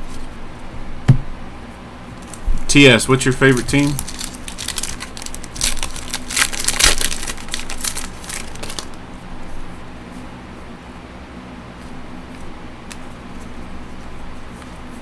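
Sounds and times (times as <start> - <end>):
cards rustling: 3.1 - 9.0
foil wrapper crinkling: 3.1 - 9.0.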